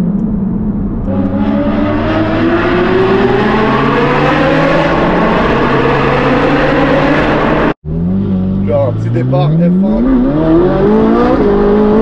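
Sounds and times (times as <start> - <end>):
car engine accelerating hard: 0.0 - 12.0.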